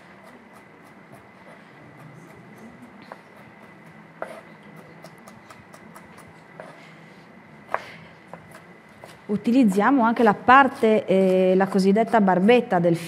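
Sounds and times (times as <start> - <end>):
knife chopping on cutting board: 0.0 - 6.8.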